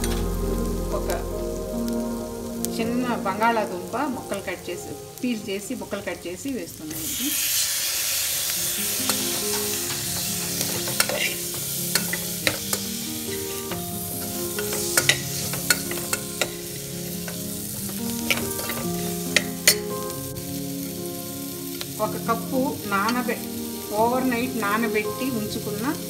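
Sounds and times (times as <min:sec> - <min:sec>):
food sizzling in hot oil: 0:00.0 - 0:26.0.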